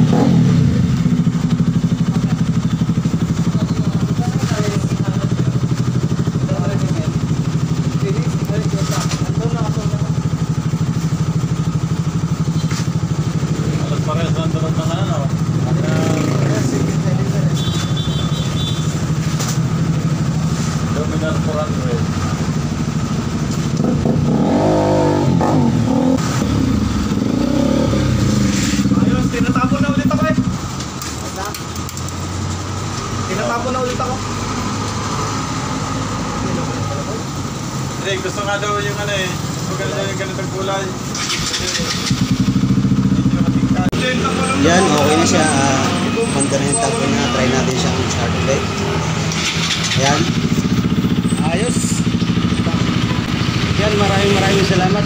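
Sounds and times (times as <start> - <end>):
motorcycle engine idling: 0.0 - 32.4, 36.5 - 44.0, 49.3 - 55.0.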